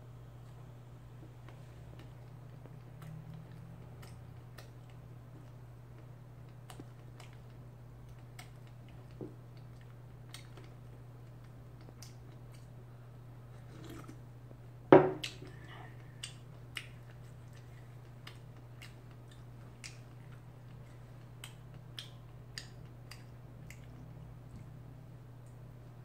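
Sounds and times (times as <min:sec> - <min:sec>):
steady low hum: 0:00.0 - 0:26.0
chewing and mouth noises: 0:01.2 - 0:12.8, 0:15.2 - 0:24.8
mug knocking on wooden table: 0:14.9 - 0:15.2.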